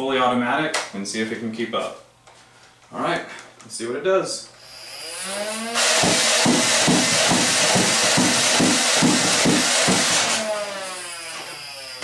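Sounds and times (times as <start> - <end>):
toy blaster flywheel motors whining: 10.2 - 12.0.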